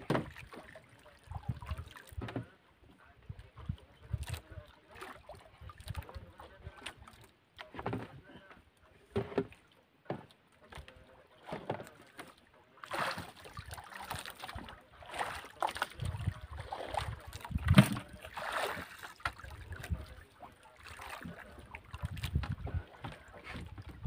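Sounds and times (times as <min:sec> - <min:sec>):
water splashing against boat hull: 0:00.0 - 0:24.0
wind buffeting microphone: 0:16.0 - 0:18.2, 0:21.9 - 0:24.0.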